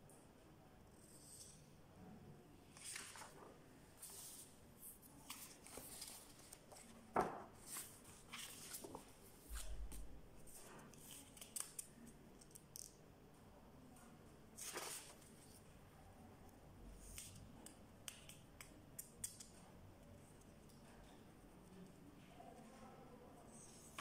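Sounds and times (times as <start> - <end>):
paper pages rustling: 2.7 - 11.9, 14.6 - 15.6.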